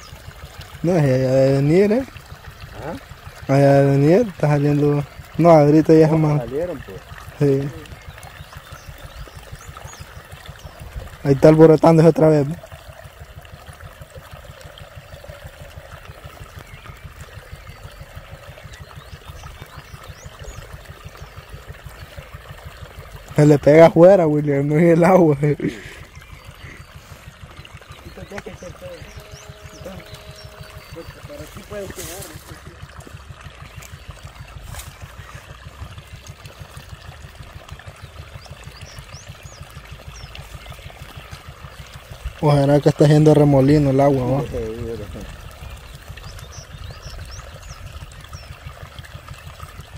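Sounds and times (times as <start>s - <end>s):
water gurgling into burrow: 0.0s - 49.9s
low fluttering rumble: 12.6s - 49.9s
low rapid throbbing: 14.1s - 48.7s.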